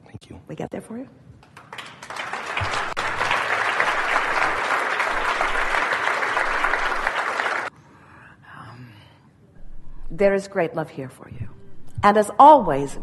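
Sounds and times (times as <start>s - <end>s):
audience applauding: 1.6s - 7.7s.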